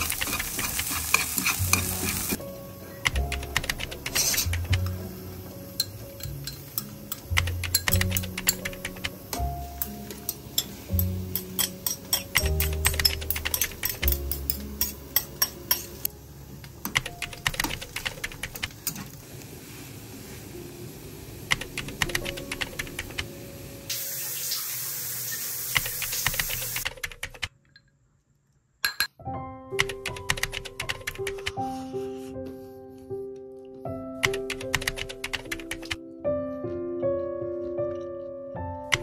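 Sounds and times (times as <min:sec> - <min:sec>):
background music: 0:00.0 - 0:18.9, 0:21.5 - 0:24.0, 0:29.1 - 0:39.0
kitchen tap running: 0:23.9 - 0:26.8.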